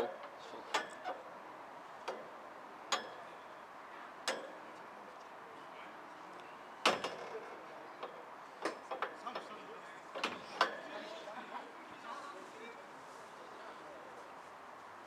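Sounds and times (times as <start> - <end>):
sharp clicks and knocks: 4.2 - 4.6, 6.8 - 7.4.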